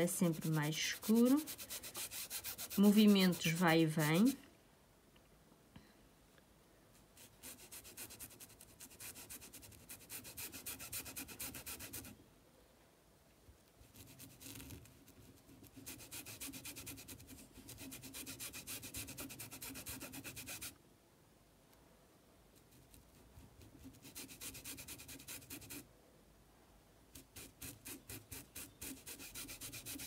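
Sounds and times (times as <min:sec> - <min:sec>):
paintbrush scrubbing on fabric: 0:00.0 - 0:04.4, 0:07.1 - 0:12.1, 0:13.8 - 0:20.7, 0:22.7 - 0:25.8, 0:27.2 - 0:30.0.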